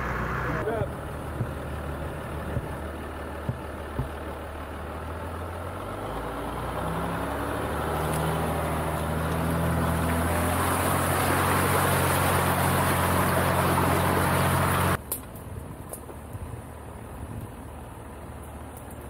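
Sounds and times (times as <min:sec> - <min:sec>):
engine running at low speed: 0:00.0 - 0:19.0
sharp knocks: 0:03.4 - 0:04.3.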